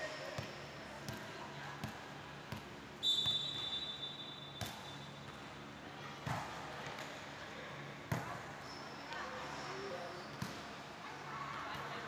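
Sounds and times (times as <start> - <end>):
referee whistle blast: 3.0 - 4.5.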